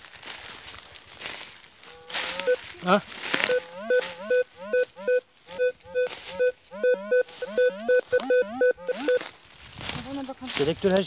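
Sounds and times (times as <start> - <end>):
metal detector beeping: 2.2 - 2.6, 3.3 - 9.3.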